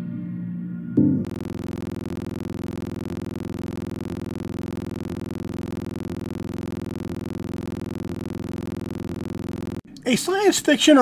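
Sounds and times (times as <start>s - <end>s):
electronic buzzing drone: 1.2s - 9.8s.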